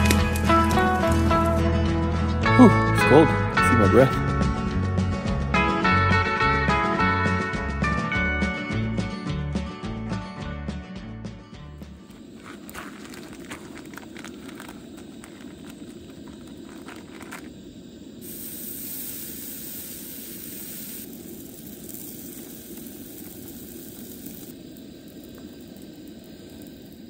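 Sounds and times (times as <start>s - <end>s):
steady rushing hiss: 0.0s - 7.1s, 11.8s - 27.0s.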